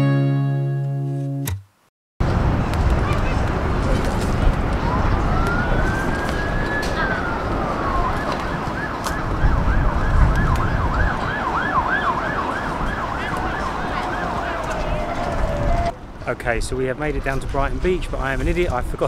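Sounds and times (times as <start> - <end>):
siren wailing and yelping: 4.9 - 15.9.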